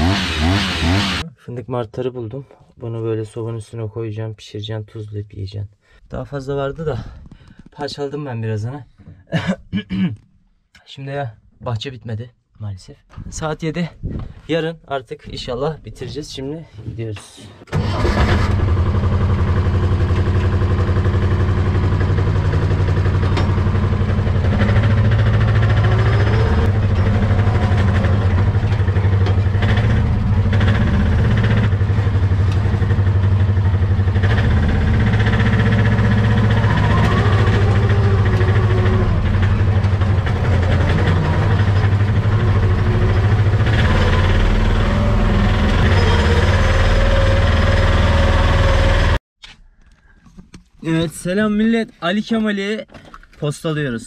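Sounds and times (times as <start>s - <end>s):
tractor engine running: 17.7s - 49.2s.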